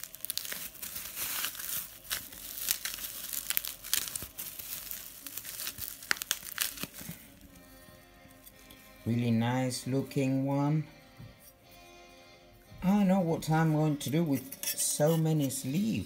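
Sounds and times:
bubble wrap crinkling: 0.0s - 9.1s.

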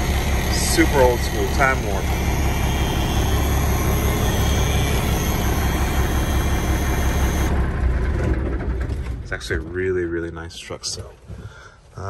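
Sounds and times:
diesel engine idling: 0.0s - 8.5s.

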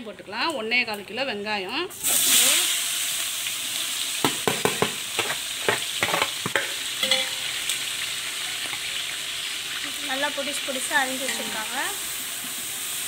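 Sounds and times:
onions sizzling in oil: 0.0s - 13.0s
ladle scraping pot: 4.8s - 7.6s, 11.3s - 11.7s.

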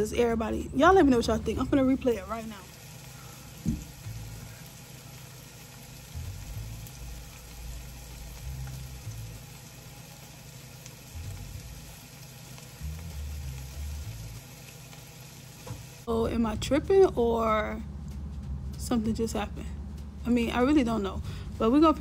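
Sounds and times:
food sizzling in a frying pan: 1.5s - 16.1s
dull low bumps: 3.6s - 4.5s, 15.7s - 22.0s.

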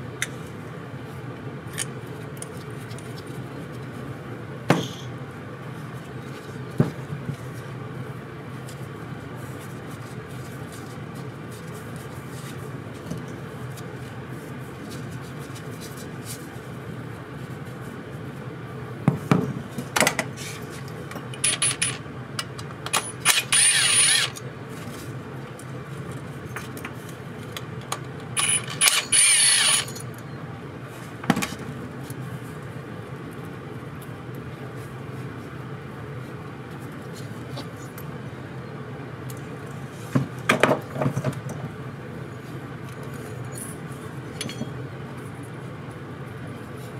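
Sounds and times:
steady low hum: 0.0s - 46.9s
cordless screwdriver whirring: 23.0s - 24.4s, 28.4s - 30.0s
small metal parts clicking: 28.4s - 30.2s.

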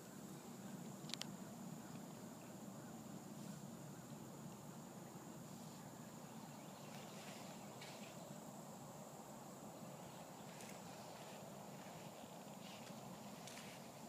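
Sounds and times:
rustles in grass: 3.2s - 9.0s, 9.7s - 14.0s.

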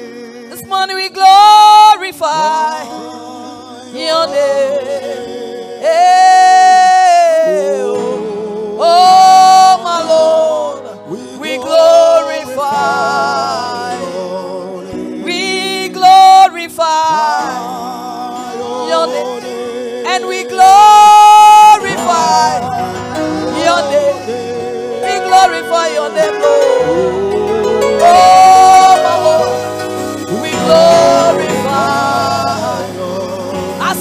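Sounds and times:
person singing with vibrato: 0.0s - 34.0s
sustained accompaniment: 21.6s - 34.0s.

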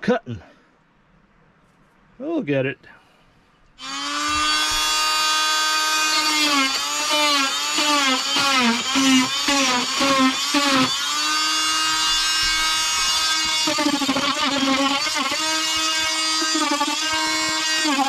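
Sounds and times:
rotary tool whining: 3.8s - 18.0s.

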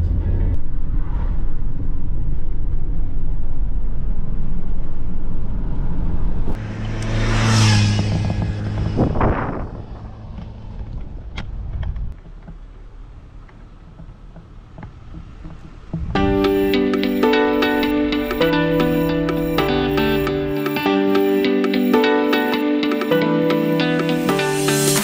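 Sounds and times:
road rumble inside car: 0.0s - 16.2s
wind and tyre noise: 0.0s - 23.2s
motorcycle passing: 5.5s - 11.8s, 13.9s - 25.0s.

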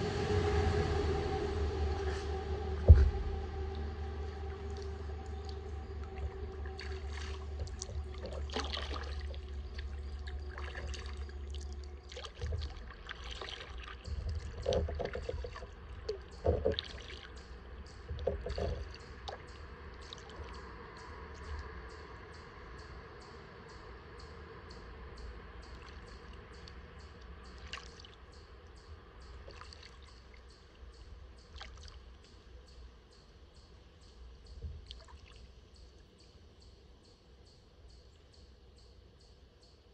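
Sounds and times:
low rumble: 0.0s - 29.6s
paddle splashing in water: 1.9s - 20.7s, 27.5s - 28.2s, 29.4s - 30.4s, 31.5s - 32.2s
water dripping off paddle: 2.8s - 22.0s, 25.6s - 32.4s, 34.6s - 35.9s.

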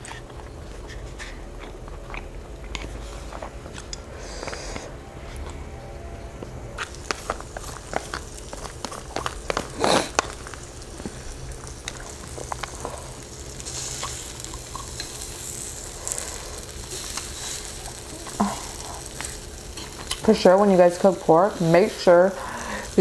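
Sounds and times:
meat sizzling on grill: 6.8s - 23.0s
chopsticks clicking on grill: 13.7s - 15.3s, 17.0s - 20.6s.

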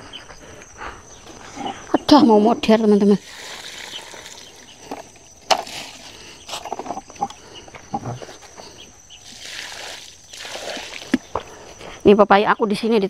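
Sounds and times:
faint outdoor background noise: 0.0s - 13.0s
bucket knocks: 3.4s - 7.0s.

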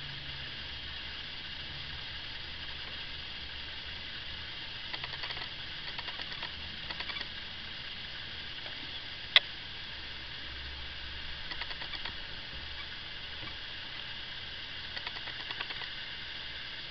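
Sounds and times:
recording hiss: 0.0s - 16.9s
sharp click: 4.9s - 7.3s, 11.5s - 12.2s, 14.9s - 15.9s
faint ticking: 4.9s - 7.4s, 11.4s - 13.6s, 14.8s - 16.0s.

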